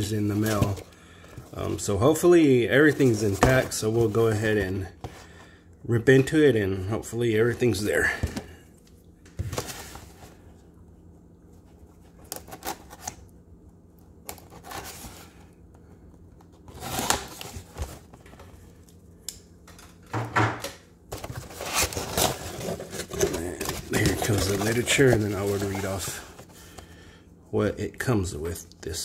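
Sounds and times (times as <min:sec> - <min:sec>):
cardboard flaps rustling: 0:02.8 - 0:04.4, 0:21.1 - 0:26.5.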